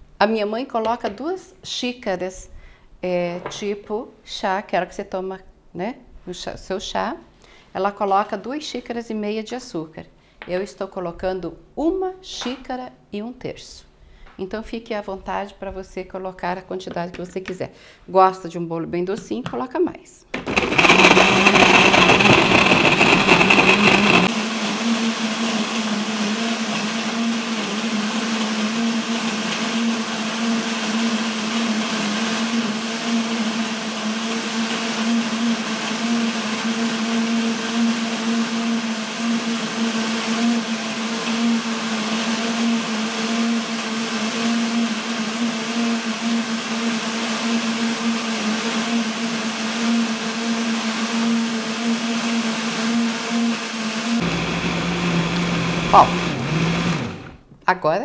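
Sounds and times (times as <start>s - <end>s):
blender motor hum: 20.4s - 57.4s.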